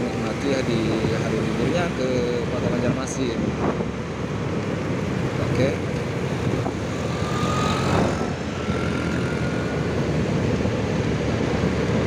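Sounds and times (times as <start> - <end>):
road noise: 0.0 - 12.0
motorcycle engine: 3.9 - 12.0.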